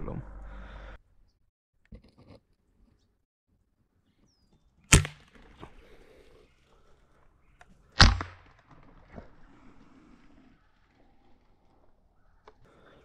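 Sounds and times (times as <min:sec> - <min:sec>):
air rifle shots: 0:04.9 - 0:05.5, 0:08.0 - 0:08.5.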